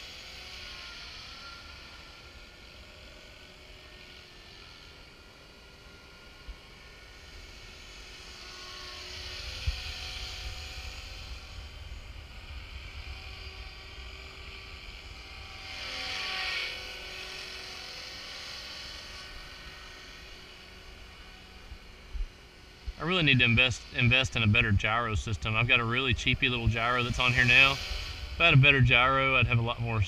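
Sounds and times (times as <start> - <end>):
rc helicopter whine: 0.0 - 30.0
low rumble: 21.7 - 30.0.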